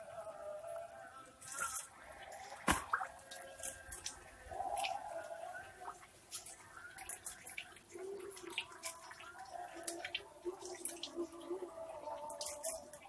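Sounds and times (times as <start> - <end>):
water drips: 0.1 - 13.0
fish splashing at water surface: 1.4 - 5.0.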